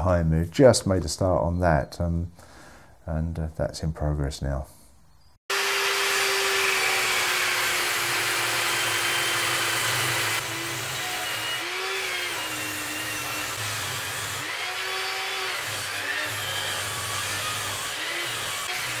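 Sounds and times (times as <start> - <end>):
table saw motor whine: 5.5 - 19.0.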